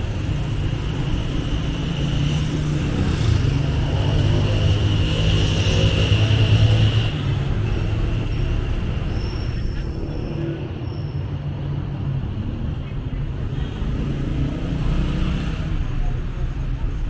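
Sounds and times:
car and motorbike engines passing: 0.0 - 10.9, 11.6 - 17.0.

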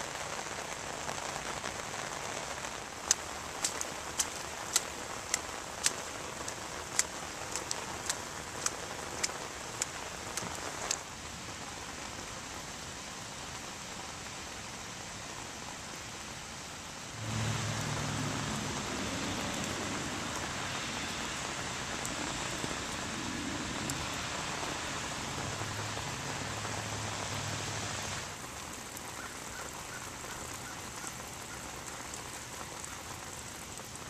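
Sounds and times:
rain falling on pavement: 0.0 - 34.0
low hum: 17.1 - 28.2.

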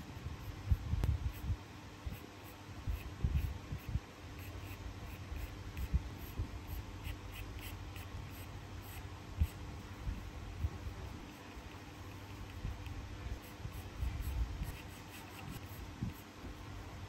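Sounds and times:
pencil scratching on paper: 2.1 - 9.7, 10.6 - 16.3.

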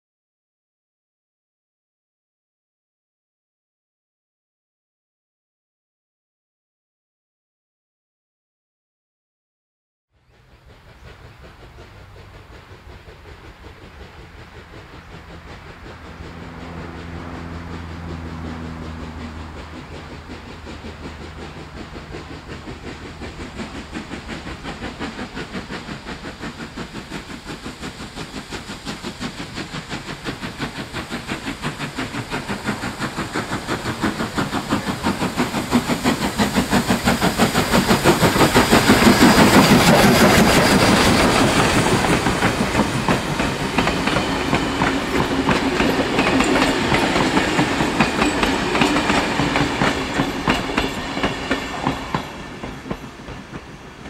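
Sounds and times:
steam locomotive exhaust chuffing: 10.2 - 54.0
carriage wheels clacking over rail joints: 19.1 - 54.0.

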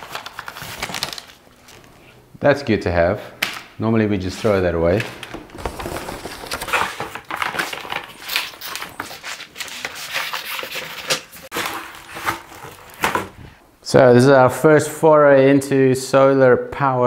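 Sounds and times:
cardboard scraping and rustling: 4.3 - 13.6.

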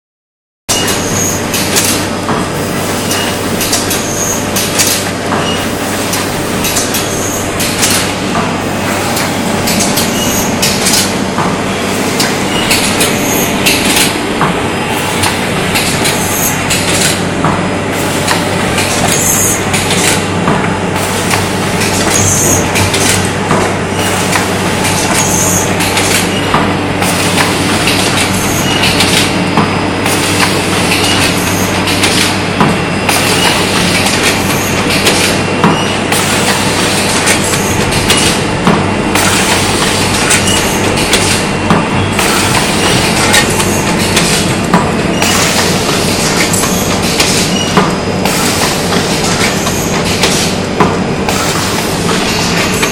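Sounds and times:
machine humming and clattering: 0.7 - 52.9.

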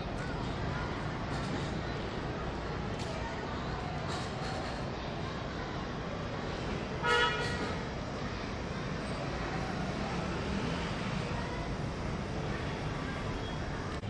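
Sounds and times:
urban background noise: 0.0 - 14.0
short vehicle horn toot: 7.0 - 7.8.

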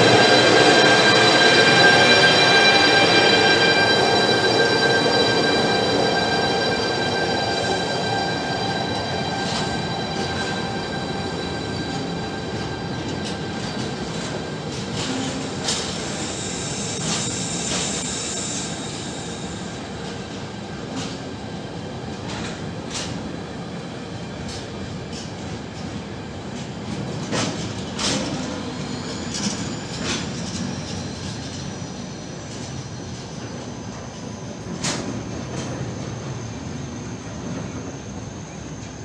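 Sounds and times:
train wheels clacking: 0.0 - 23.4, 24.2 - 36.4
freight train rumbling past: 0.0 - 39.0
train wheels squealing: 0.0 - 39.0.

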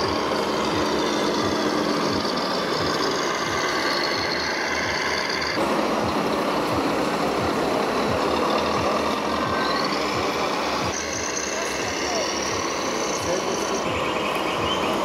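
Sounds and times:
model machine engine drone: 0.0 - 15.0.

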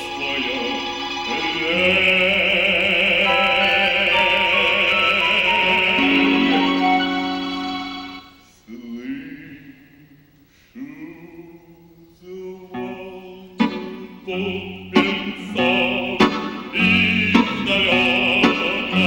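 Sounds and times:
man singing into a microphone: 0.0 - 6.6, 14.2 - 19.0
instrumental accompaniment: 0.0 - 8.4, 12.8 - 19.0.

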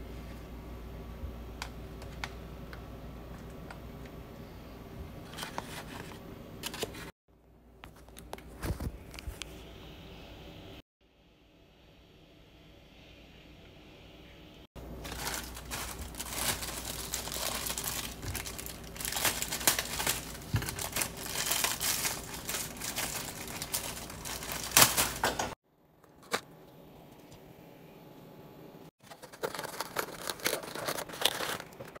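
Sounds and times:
food packaging crinkling: 14.8 - 25.6, 29.0 - 32.0.

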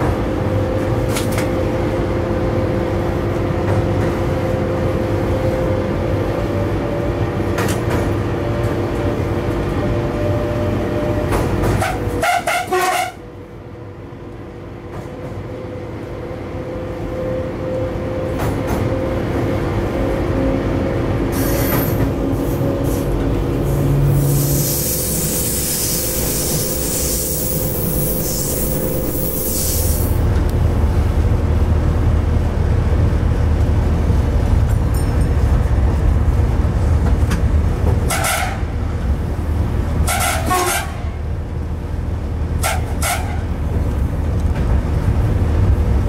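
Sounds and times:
locomotive rumble with motor whine: 0.0 - 46.0
pulsing train horn: 10.1 - 13.3, 38.0 - 38.9, 40.0 - 41.3, 42.6 - 43.6.

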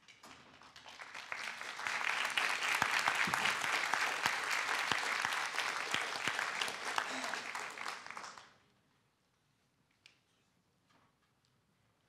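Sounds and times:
audience applause: 0.8 - 8.5.

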